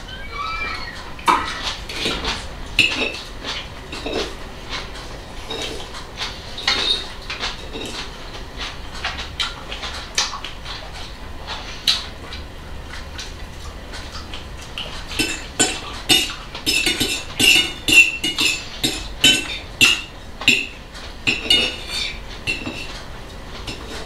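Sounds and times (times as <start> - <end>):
forks clinking on plates: 6.6 - 8.0, 15.1 - 23.0, 23.6 - 24.0.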